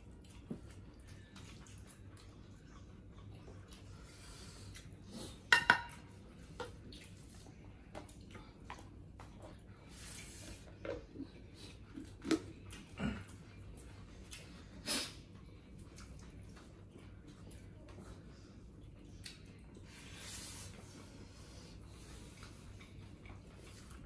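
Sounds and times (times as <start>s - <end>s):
plates and bowl clinking: 5.5s - 6.1s.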